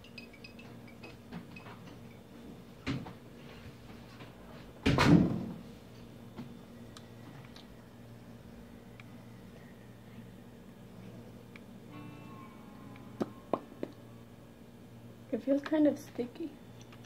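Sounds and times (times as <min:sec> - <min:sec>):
faint steady hum: 0:00.0 - 0:17.0.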